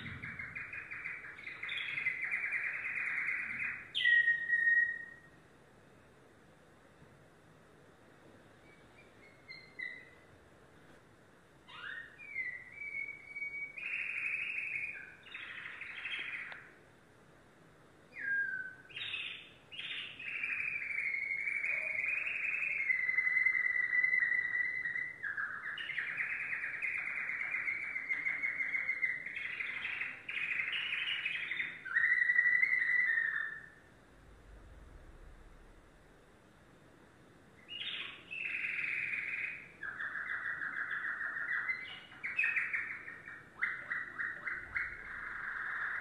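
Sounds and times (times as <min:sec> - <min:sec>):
canary singing and trilling: 0:00.0 - 0:05.4, 0:08.6 - 0:10.2, 0:11.6 - 0:16.7, 0:18.1 - 0:33.9, 0:37.6 - 0:46.0.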